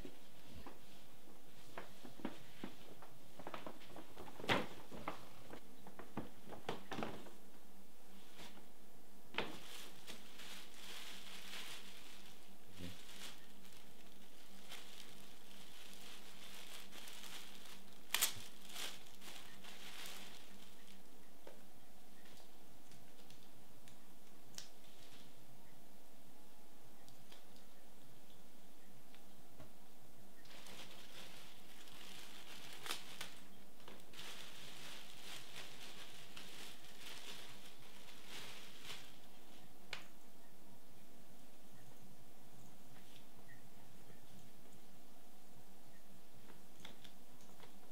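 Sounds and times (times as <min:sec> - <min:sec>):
plastic bag crinkling: 0:01.6 - 0:07.4, 0:09.4 - 0:21.2, 0:30.4 - 0:40.1
sharp plastic crackles: 0:01.7 - 0:07.5, 0:09.3 - 0:21.6, 0:30.4 - 0:40.2
plastic tearing: 0:09.4 - 0:21.0, 0:30.5 - 0:39.3.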